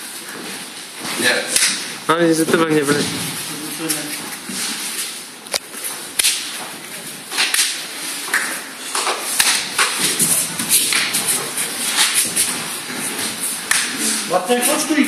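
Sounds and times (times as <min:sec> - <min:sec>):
sharp slaps: 0:01.4 - 0:01.9, 0:06.1 - 0:06.6, 0:07.3 - 0:12.6, 0:13.6 - 0:14.3.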